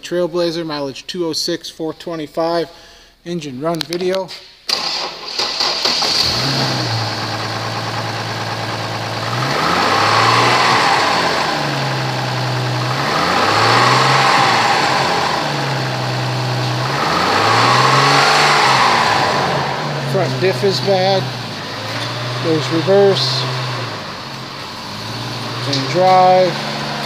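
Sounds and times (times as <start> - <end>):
car engine idling and revving: 4.7 - 27.0.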